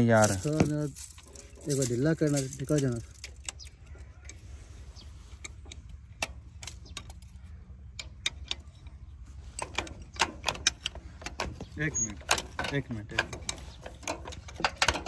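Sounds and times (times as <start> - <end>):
low steady hum: 0.0 - 15.0
spanner clicking on metal: 5.4 - 9.0, 9.6 - 15.0.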